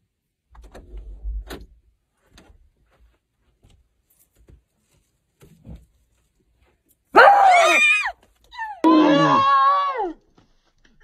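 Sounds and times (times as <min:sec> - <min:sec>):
faint knocks and rustles: 0:00.6 - 0:07.1.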